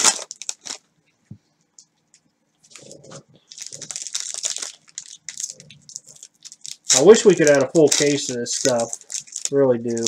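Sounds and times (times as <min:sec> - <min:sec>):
card pack wrapper crinkling: 0:00.0 - 0:00.9, 0:02.7 - 0:10.0
cards ticking: 0:03.7 - 0:10.0.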